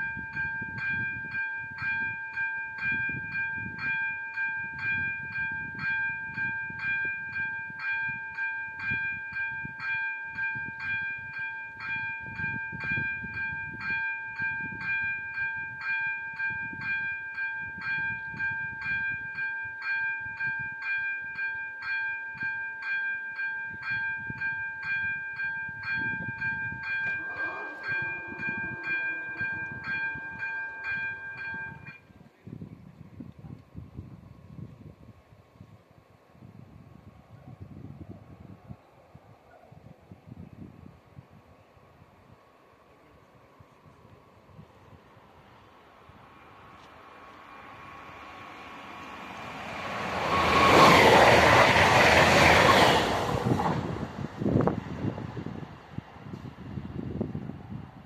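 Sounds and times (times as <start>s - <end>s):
level crossing warning bell: 0.0s - 32.1s, 45.4s - 53.6s
brief wavering tone: 27.0s - 32.0s.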